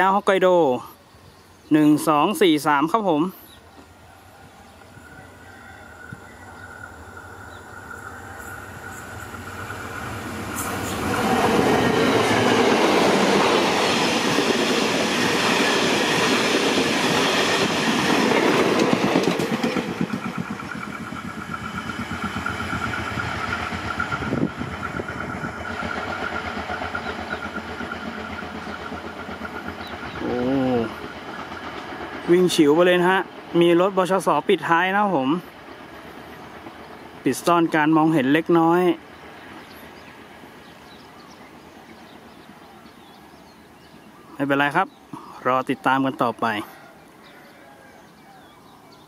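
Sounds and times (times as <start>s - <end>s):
passenger train passing: 0.0s - 49.0s
train wheel clatter: 7.5s - 41.1s.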